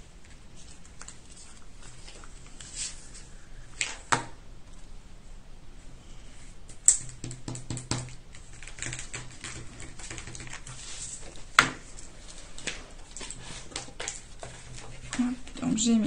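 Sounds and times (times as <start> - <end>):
paper and craft tools tapping: 6.9 - 11.9, 12.6 - 15.6.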